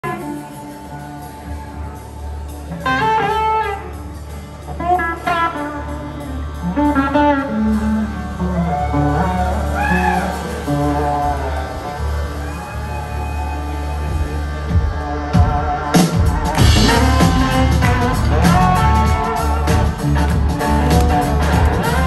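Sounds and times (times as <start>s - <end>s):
bass line: 0.0s - 22.0s
drums: 0.0s - 22.0s
electric guitar lead phrases: 15.0s - 22.0s.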